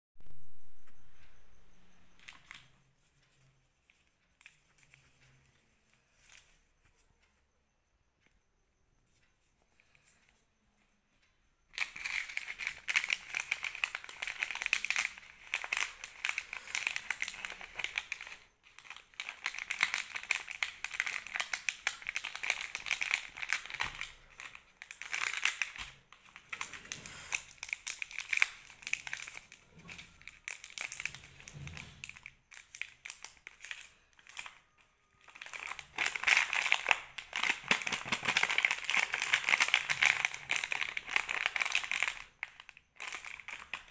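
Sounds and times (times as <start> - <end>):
plastic wrappers crinkling: 11.7 - 43.9.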